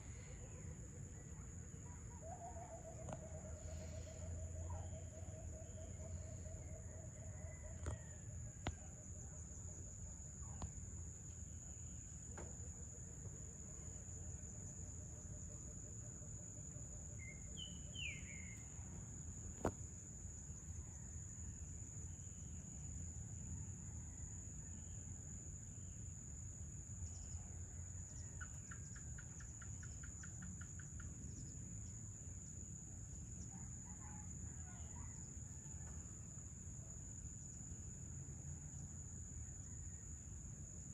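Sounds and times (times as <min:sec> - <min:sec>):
insects trilling: 0:00.0 - 0:40.9
bird chirp: 0:17.2 - 0:18.6.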